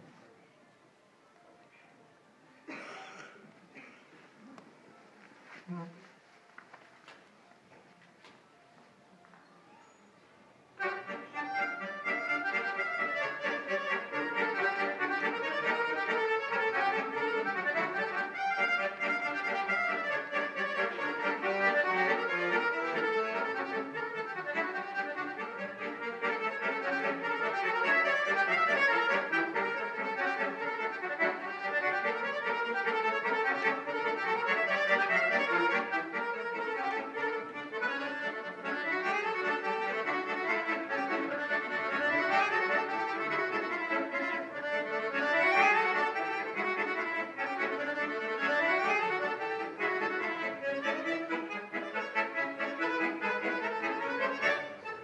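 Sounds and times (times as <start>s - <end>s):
solo accordion playing: 10.4s - 55.0s.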